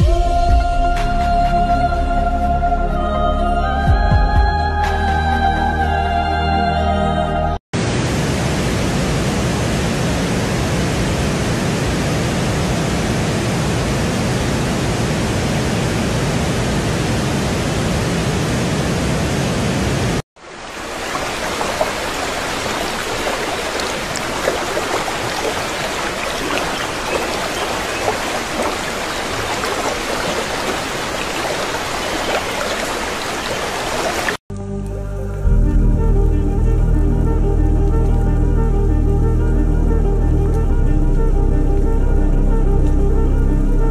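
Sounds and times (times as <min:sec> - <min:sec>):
shallow water babbling: 0:20.4 - 0:34.4
stream water rushing: 0:20.4 - 0:34.4.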